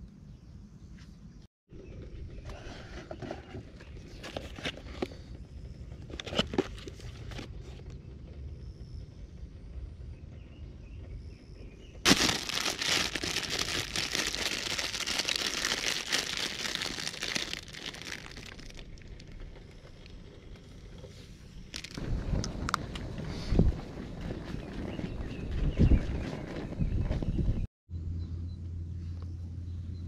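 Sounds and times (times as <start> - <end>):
plastic packet crinkling: 12.1 - 19.4, 21.7 - 22.0.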